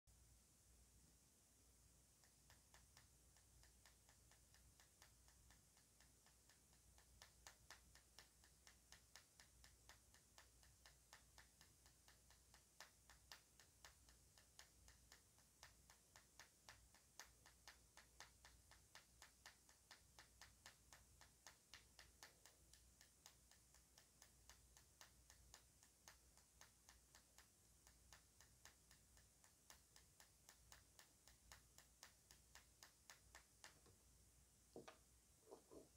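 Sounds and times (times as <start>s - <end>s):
pencil tapping on plastic: 34.8s - 35.9s.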